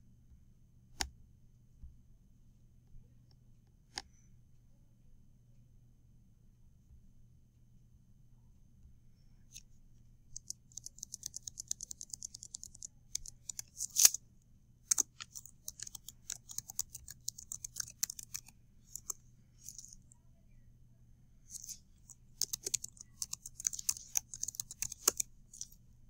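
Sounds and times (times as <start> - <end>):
computer keyboard typing: 10.4 - 14.2, 14.9 - 20.0, 21.5 - 25.8.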